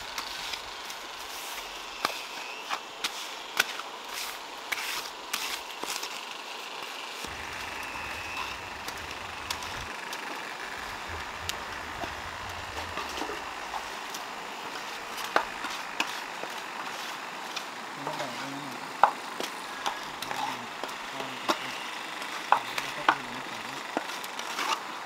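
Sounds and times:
trowel scraping wet cement: 1.3 - 6.1.

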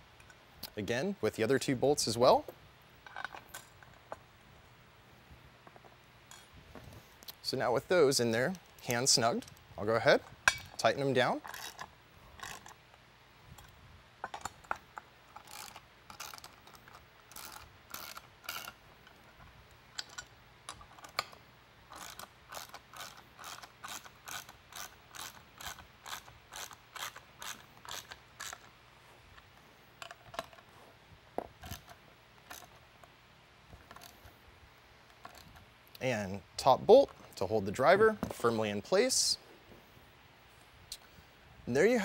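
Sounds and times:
ratchet clicking: 15.3 - 18.8, 20.0 - 28.7.

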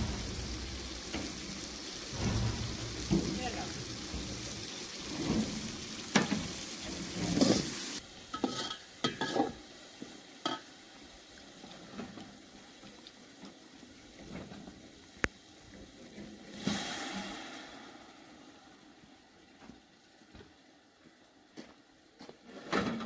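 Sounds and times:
food sizzling in pot: 0.0 - 20.2.

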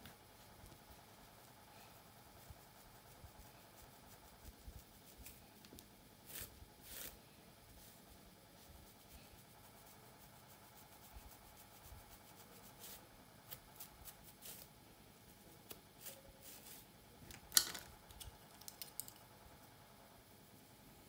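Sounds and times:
comb scraping through hair: 6.2 - 7.2, 11.2 - 14.7, 15.7 - 16.9.

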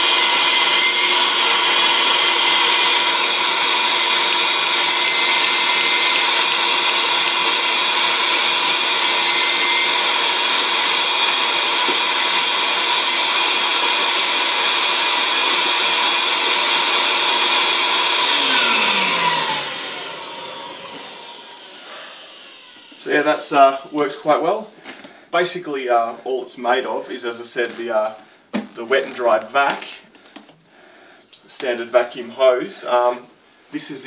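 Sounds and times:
vacuum cleaner motor whining: 0.0 - 25.1.

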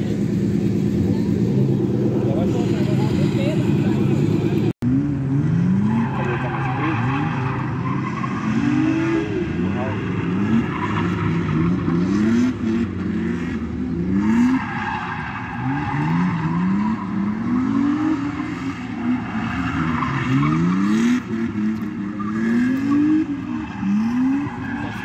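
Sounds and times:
car engine revving hard: 2.2 - 25.0
tyres squealing on asphalt: 5.7 - 13.4, 14.0 - 25.0.

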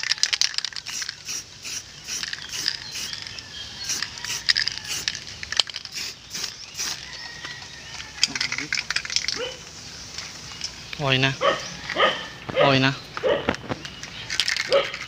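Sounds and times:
spray can rattling: 0.0 - 10.8, 13.8 - 15.0
spray can hissing: 0.4 - 7.4.

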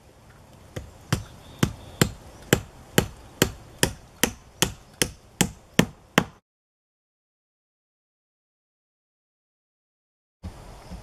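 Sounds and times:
hammer striking wood: 0.8 - 6.4.

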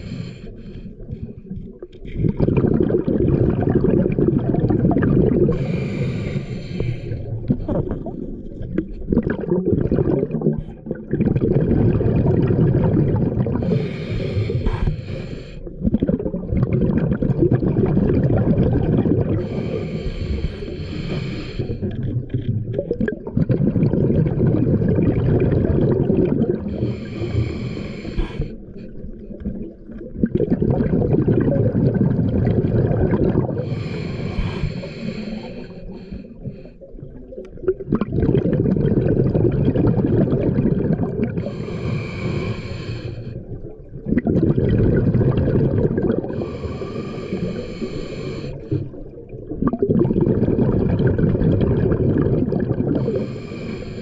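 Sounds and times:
regulator hissing inhale: 0.0 - 1.4, 5.5 - 7.4, 13.6 - 15.7, 19.4 - 22.0, 26.7 - 29.1, 33.6 - 37.0, 41.4 - 43.6, 46.3 - 49.0, 53.0 - 54.0
gurgling exhaled bubbles: 0.0 - 54.0.

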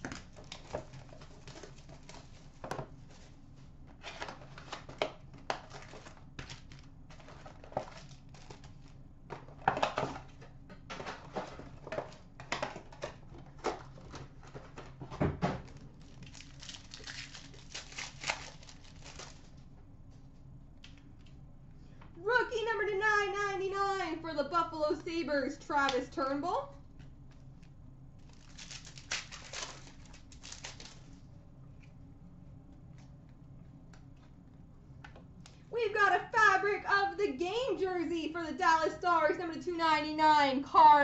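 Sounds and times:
pack wrapper tearing and crinkling: 4.2 - 8.9, 15.7 - 19.6, 28.2 - 31.2.

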